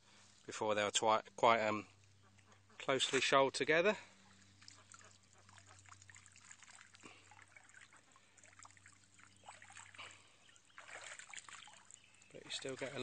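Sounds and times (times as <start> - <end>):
net dripping water: 4.0 - 13.0
net splashing in shallow water: 4.1 - 13.0.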